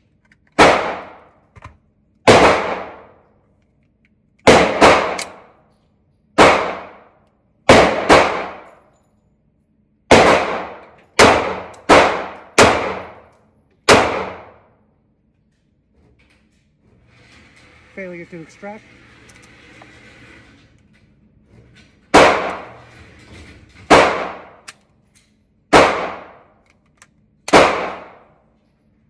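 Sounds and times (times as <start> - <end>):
pistol shots: 0.6 - 1.3, 2.2 - 3.2, 4.4 - 5.5, 6.4 - 7.1, 7.7 - 8.7, 10.1 - 13.2, 13.8 - 14.6, 22.1 - 22.7, 23.9 - 24.7, 25.7 - 26.6, 27.5 - 28.4.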